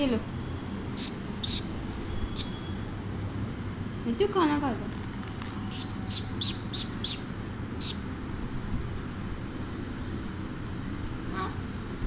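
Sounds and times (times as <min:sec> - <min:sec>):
steady low hum: 0:00.0 - 0:12.0
parakeet chirping: 0:00.9 - 0:02.7, 0:05.6 - 0:08.2.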